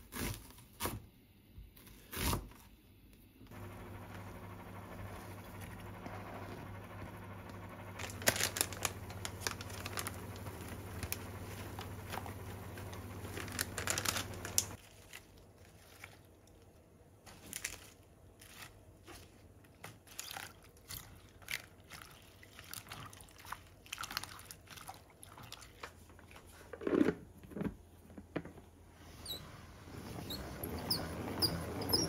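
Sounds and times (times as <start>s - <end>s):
steady hum: 3.5s - 14.8s
salad spinner squeaking: 29.1s - 32.0s.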